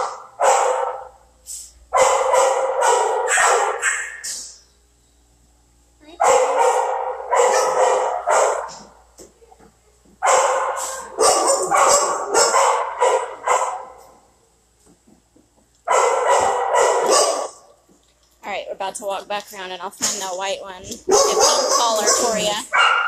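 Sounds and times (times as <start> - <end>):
dogs barking rapidly: 0.0 - 1.2, 1.9 - 4.6, 6.2 - 9.0, 10.2 - 14.1, 15.8 - 17.7, 21.0 - 23.0.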